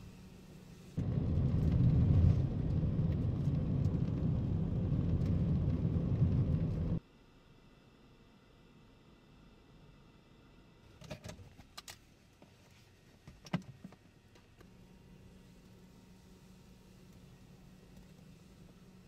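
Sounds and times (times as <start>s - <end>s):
car road and engine rumble: 0.0s - 7.0s.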